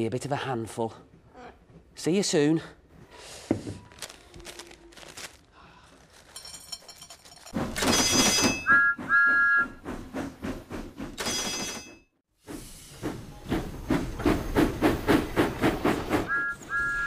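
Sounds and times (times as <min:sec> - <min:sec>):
steam train chuffing: 0:07.6 - 0:17.0
steam whistle toots: 0:08.6 - 0:09.8, 0:16.3 - 0:17.0.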